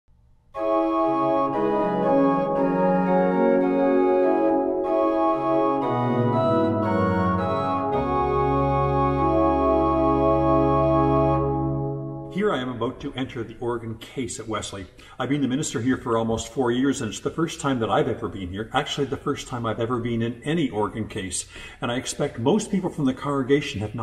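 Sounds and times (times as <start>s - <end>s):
pipe organ chords: 0.5s - 13.1s
deep organ pedal note: 0.6s - 12.4s.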